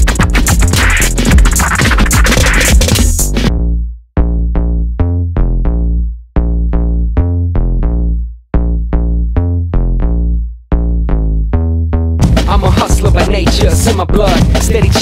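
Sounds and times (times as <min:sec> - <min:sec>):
drum machine beat: 0:00.0 - 0:03.5, 0:12.2 - 0:15.0
deep bass: 0:00.0 - 0:15.0.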